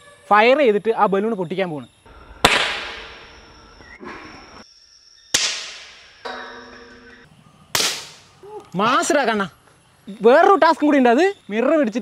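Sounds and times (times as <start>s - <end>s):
gunshot crack with echo: 2.4s - 3.2s.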